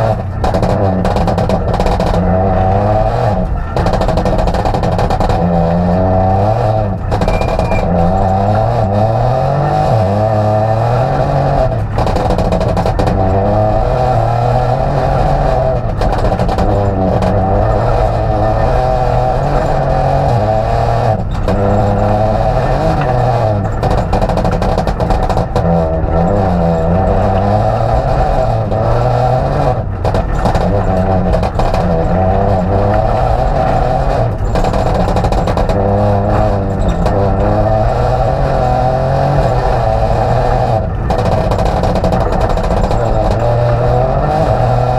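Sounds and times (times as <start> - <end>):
car engine revving: 0.0 - 44.9.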